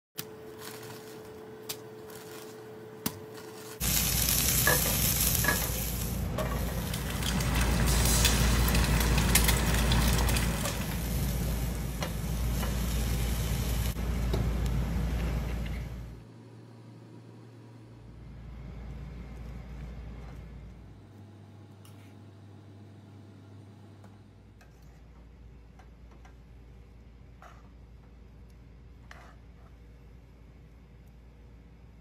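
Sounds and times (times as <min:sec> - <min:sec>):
food sizzling in hot oil: 0:03.8 - 0:14.0.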